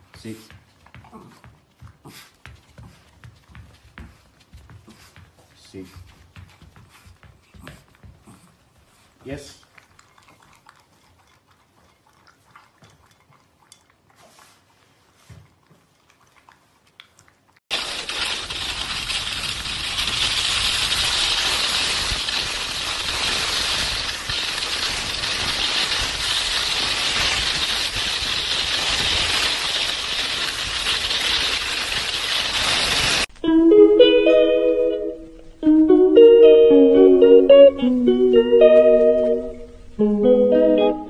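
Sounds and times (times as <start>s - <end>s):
hiss of sliding on icy snow: 17.7s - 33.3s.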